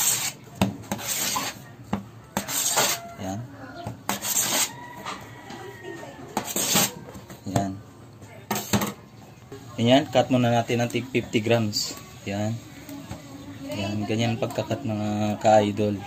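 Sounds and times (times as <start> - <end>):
dough swishing on metal table: 0.0 - 1.6, 2.4 - 3.0, 4.1 - 4.8, 6.4 - 7.0.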